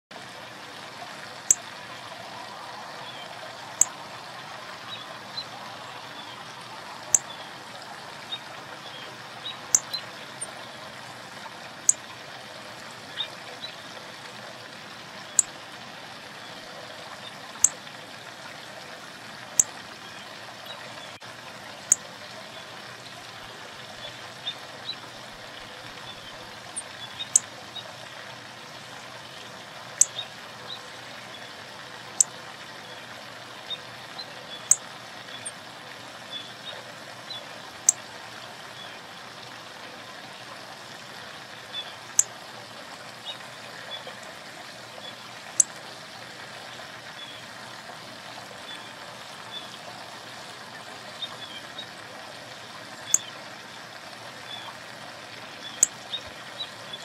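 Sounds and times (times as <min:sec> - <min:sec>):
running water hiss: 0:00.1 - 0:57.0
soft bird chirps: 0:53.0 - 0:53.3.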